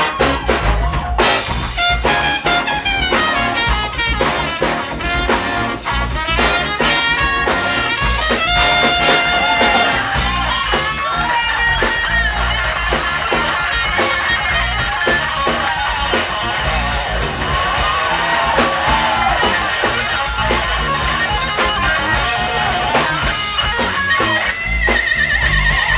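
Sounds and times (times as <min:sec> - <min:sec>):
band hitting short chords: 0:00.0 - 0:11.0
bass and drums: 0:00.0 - 0:25.9
electric guitar solo: 0:00.0 - 0:25.9.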